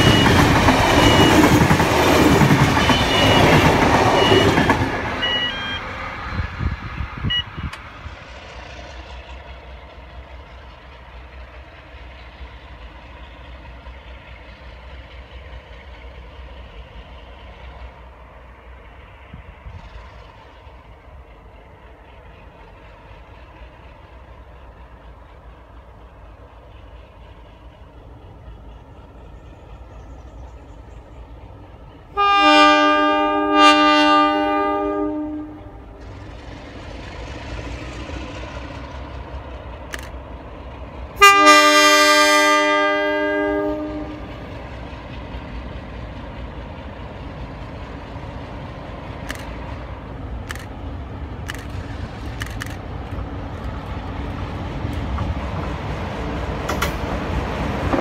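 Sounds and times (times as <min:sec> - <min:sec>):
diesel engine rumble: 0:00.0 - 0:58.0
locomotive horn chord: 0:32.2 - 0:36.0, 0:41.2 - 0:44.4.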